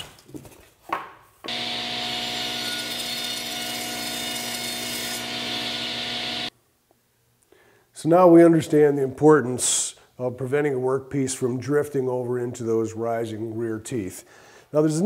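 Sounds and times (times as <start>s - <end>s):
table saw ripping a panel: 1.5s - 6.5s.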